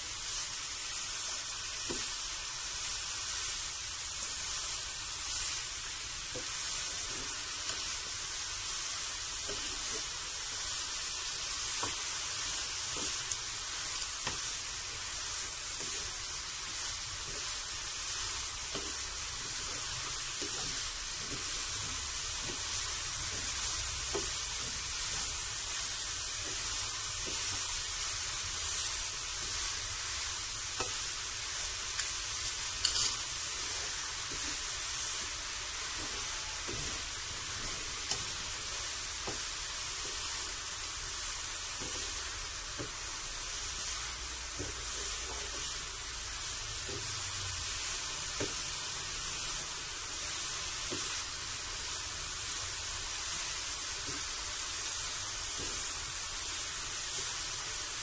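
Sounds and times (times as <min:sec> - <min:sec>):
steady hiss: 0:00.0 - 0:58.0
wooden spatula scraping a pan: 0:11.2 - 0:40.7, 0:41.7 - 0:48.8.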